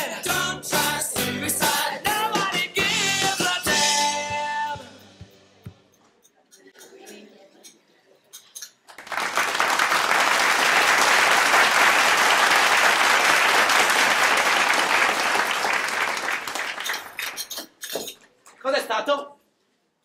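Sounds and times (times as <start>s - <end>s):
audience applauding: 8.9s - 17.4s.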